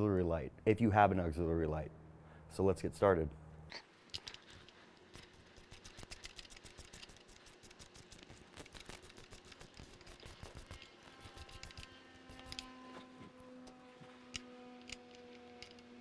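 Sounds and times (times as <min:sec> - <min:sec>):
steady low hum: 0:00.0 - 0:16.0
screwdriver clicking: 0:04.1 - 0:12.7, 0:13.6 - 0:15.9.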